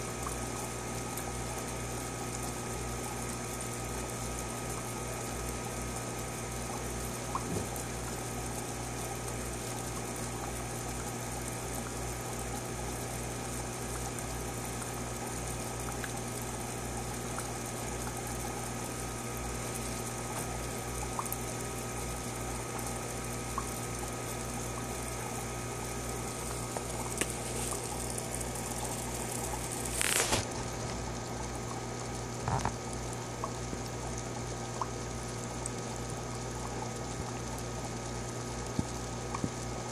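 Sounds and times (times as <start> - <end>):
water trickling: 0.0 - 39.8
low hum of aquarium filter: 0.0 - 39.9.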